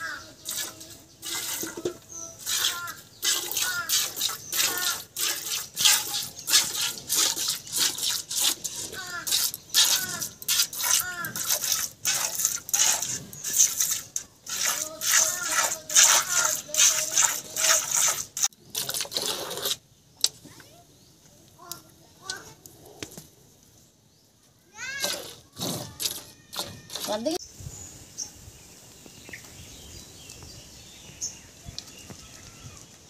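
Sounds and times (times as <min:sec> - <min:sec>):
milk squirting into metal bucket: 0:00.4 - 0:19.8, 0:25.0 - 0:27.2.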